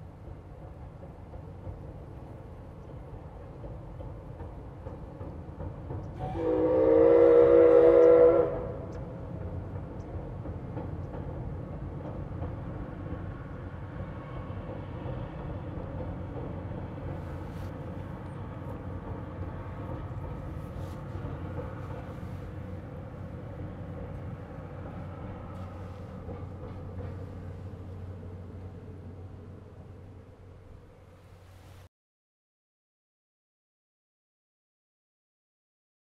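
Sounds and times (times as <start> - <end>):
train running noise: 0.0 - 31.9
steam locomotive whistle: 6.2 - 8.9.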